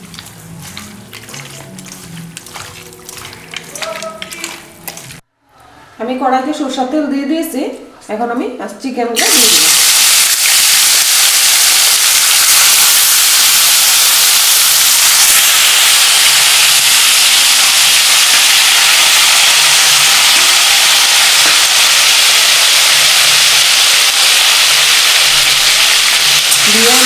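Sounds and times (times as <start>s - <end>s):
chicken sizzling in hot oil: 9.2s - 27.0s.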